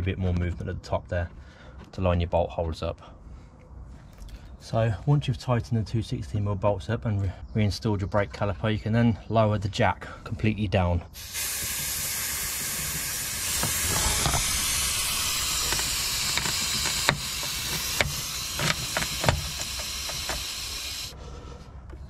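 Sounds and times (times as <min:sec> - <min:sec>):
jack release valve hissing: 0:11.2 - 0:21.2
suspension clicks and knocks: 0:12.6 - 0:21.1.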